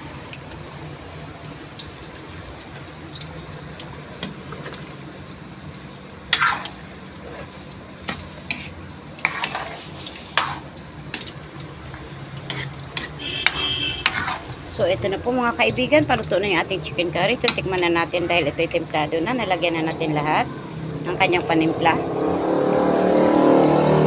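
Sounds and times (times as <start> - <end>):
simmering sizzle: 0.0 - 24.0
spoon stirring thick sauce: 6.3 - 16.3
spoon knocking and scraping pot: 12.5 - 14.6.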